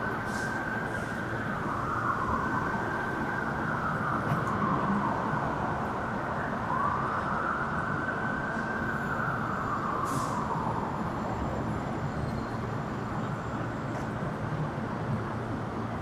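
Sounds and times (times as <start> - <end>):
emergency siren wailing: 0.0 - 15.7
city traffic rumble: 0.0 - 16.0.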